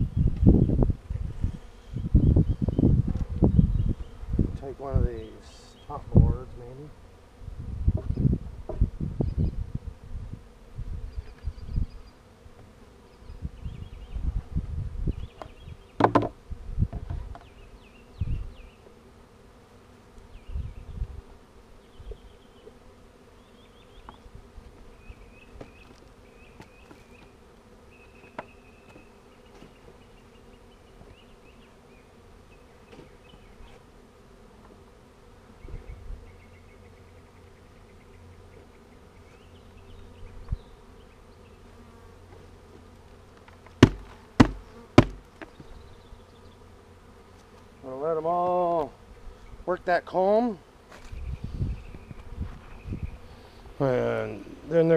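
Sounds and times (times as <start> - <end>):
bees buzzing: 0.0 - 54.9
sharp knock: 43.8 - 45.2.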